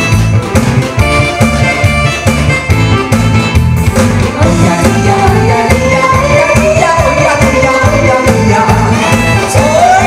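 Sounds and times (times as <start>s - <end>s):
music with steady beat: 0.0s - 10.0s
man singing into a microphone: 4.4s - 10.0s.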